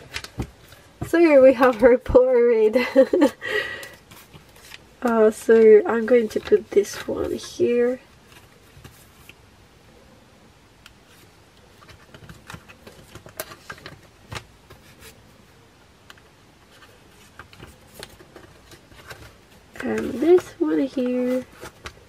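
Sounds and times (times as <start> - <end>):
photocards rustling in plastic sleeves: 0.0 - 9.4, 11.0 - 15.6, 16.6 - 22.0.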